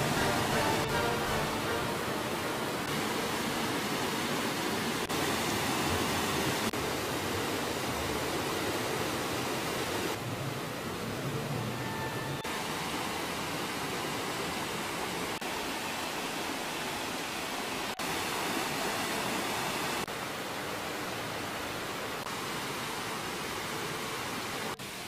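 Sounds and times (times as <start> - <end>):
stream rushing over rocks: 0.0 - 25.0.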